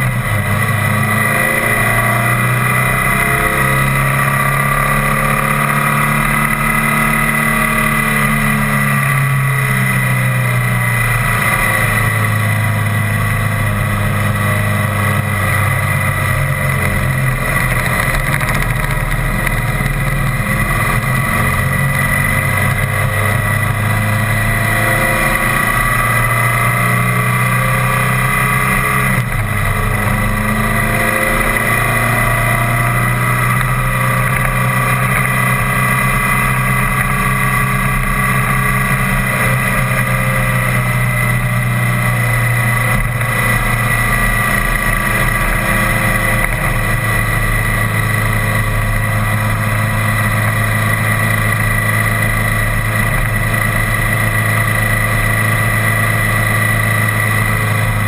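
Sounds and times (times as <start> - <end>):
vehicle engine running: 0.0 - 58.0.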